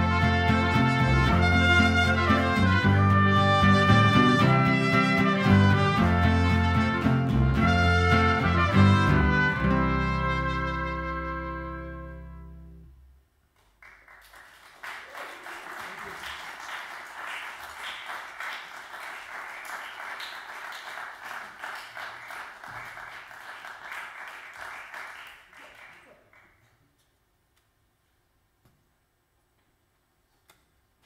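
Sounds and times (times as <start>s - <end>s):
audience applause: 13.8s - 26.6s.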